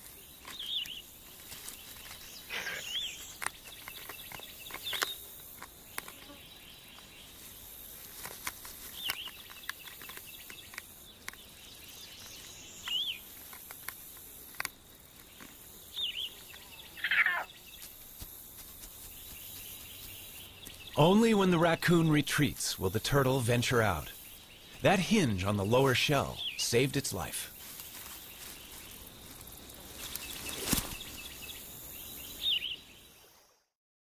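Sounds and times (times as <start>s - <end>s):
high insect hiss: 0.0s - 33.7s
bird calling: 1.8s - 7.4s, 15.2s - 18.0s, 19.0s - 32.9s.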